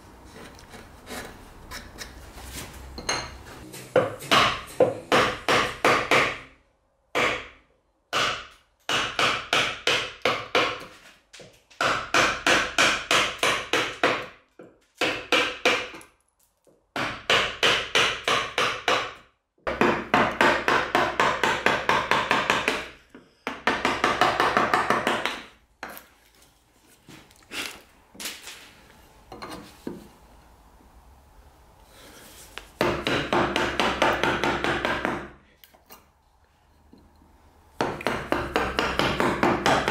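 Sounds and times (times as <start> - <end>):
mallet striking chisel into wood: 3.1 - 6.5, 7.1 - 10.9, 11.8 - 14.4, 15.0 - 16.0, 17.0 - 22.9, 23.5 - 25.5, 32.8 - 35.3, 37.8 - 39.9.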